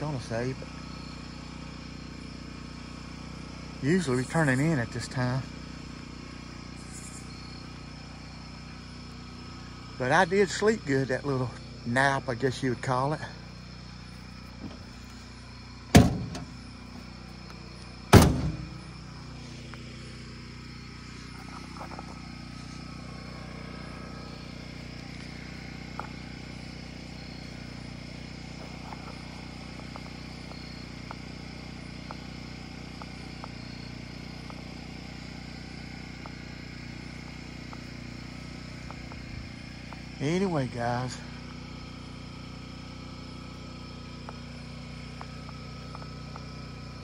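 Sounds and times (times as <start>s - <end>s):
portable generator running: 7.7s - 47.0s
heavy thuds: 15.9s - 16.7s, 18.1s - 19.0s
faint ticks: 32.0s - 34.8s, 37.1s - 40.1s, 44.1s - 46.6s.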